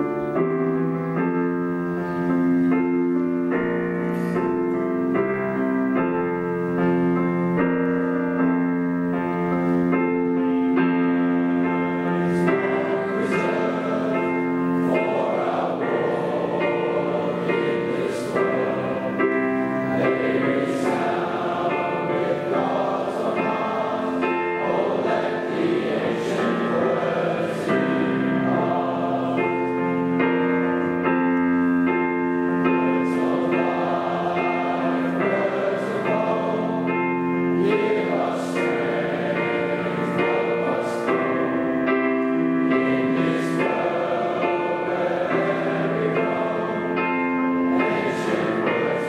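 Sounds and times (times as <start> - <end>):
digital piano accompaniment: 0.0 - 49.0
boys singing a hymn: 10.2 - 30.8, 32.1 - 49.0.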